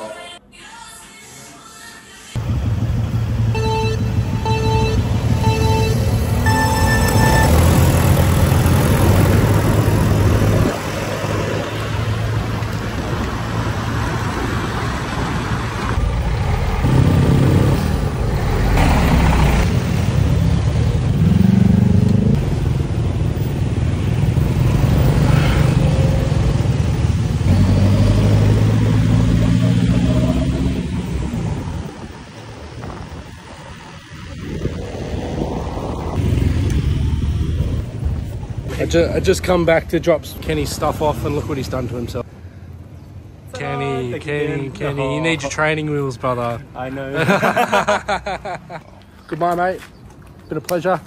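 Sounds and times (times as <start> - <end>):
scooter engines running: 2.4 - 17.3
wind buffeting microphone: 31.4 - 38.7.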